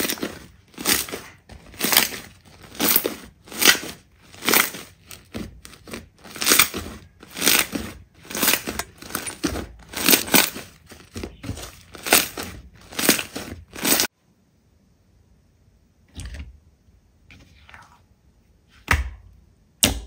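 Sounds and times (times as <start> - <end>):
slime squishing: 0.0 - 14.1.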